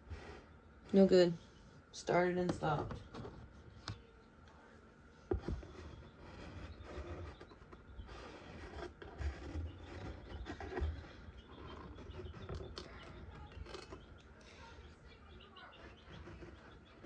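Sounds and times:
rubbing and scratching handling noise: 0:02.5 - 0:04.2, 0:05.0 - 0:17.0.

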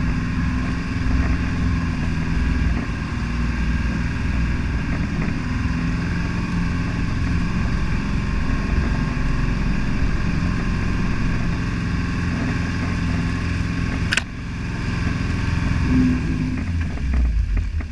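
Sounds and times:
diesel engine running under load: 0:00.0 - 0:17.9
tyres churning through mud: 0:00.0 - 0:17.9
sharp click: 0:13.9 - 0:14.3.

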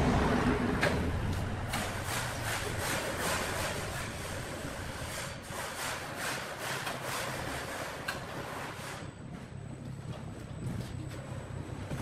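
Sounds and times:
low engine drone: 0:00.0 - 0:03.2.

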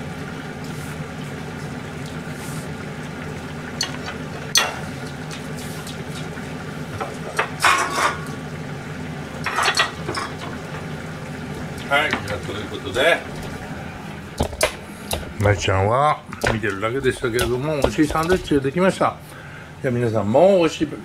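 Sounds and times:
steady low hum: 0:00.0 - 0:21.0
dishes and utensils clattering: 0:03.8 - 0:04.9, 0:07.0 - 0:08.4, 0:09.4 - 0:11.0, 0:16.4 - 0:18.6.

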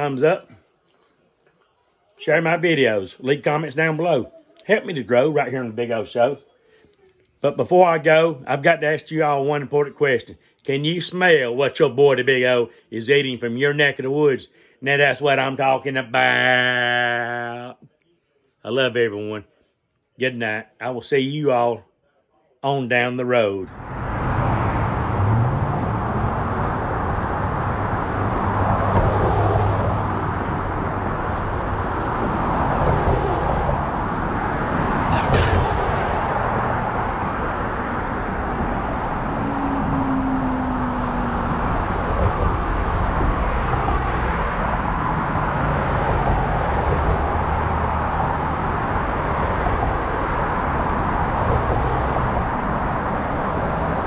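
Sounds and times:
road traffic: 0:00.0 - 0:10.8, 0:23.3 - 0:54.0.

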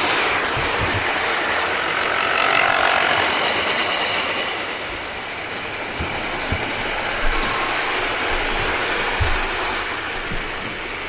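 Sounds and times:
model train motor whining: 0:00.0 - 0:05.3
wheels rattling on track: 0:00.0 - 0:11.0.

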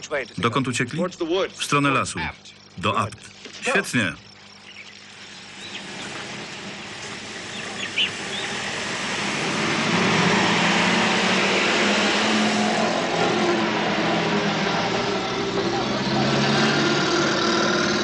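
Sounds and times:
bird chirps: 0:04.5 - 0:06.3, 0:07.0 - 0:08.7
truck engine driving past: 0:05.7 - 0:18.0.

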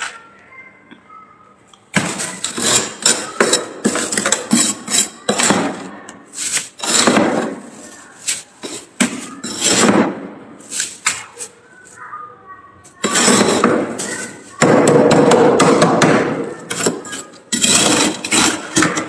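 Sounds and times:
metal spoon scraping frost: 0:02.1 - 0:10.0, 0:10.6 - 0:12.1, 0:13.0 - 0:14.6, 0:16.5 - 0:19.0.

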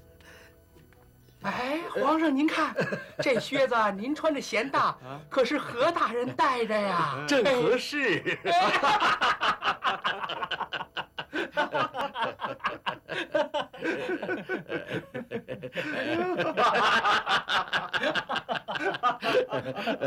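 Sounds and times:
men laughing hard: 0:08.2 - 0:20.0.

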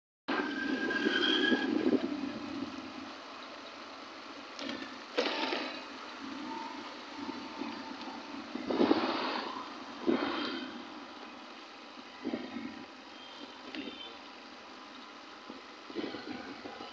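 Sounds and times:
horn-like tones: 0:00.3 - 0:02.1
motorcycle engine and road noise: 0:00.3 - 0:16.9
vehicles passing: 0:00.3 - 0:16.9.

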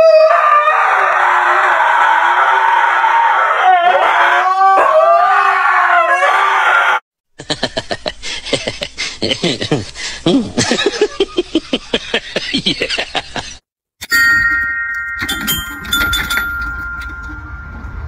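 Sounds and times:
dogs howling: 0:00.0 - 0:07.0.

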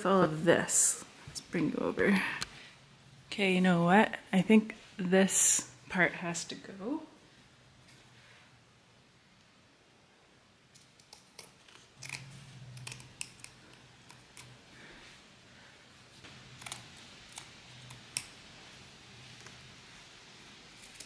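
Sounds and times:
scissors snipping fabric: 0:11.0 - 0:14.5.

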